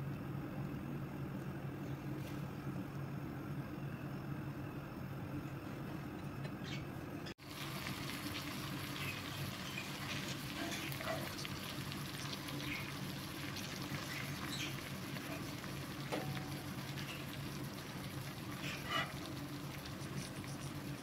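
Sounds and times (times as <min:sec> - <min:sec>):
steady low hum: 0:00.0 - 0:21.0
food crackling in a pot: 0:07.4 - 0:21.0.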